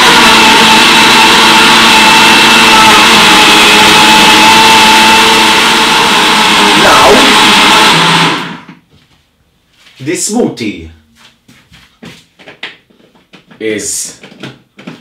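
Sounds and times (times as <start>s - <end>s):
blender motor whining: 0.0s - 8.8s.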